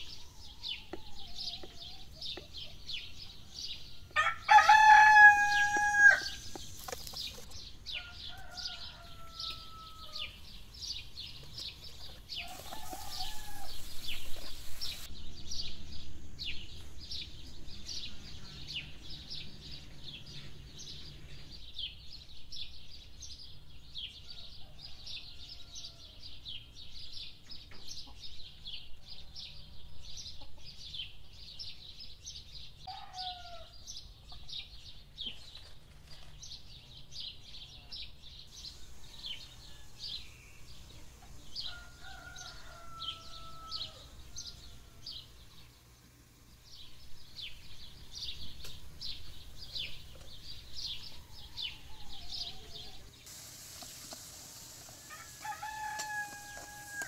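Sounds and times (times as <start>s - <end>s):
small birds chirping: 0.0s - 57.0s
rooster crowing: 4.0s - 6.4s, 7.9s - 10.4s, 12.4s - 14.5s, 32.9s - 33.8s, 38.8s - 40.3s, 41.6s - 45.2s, 51.1s - 53.1s, 54.9s - 57.0s.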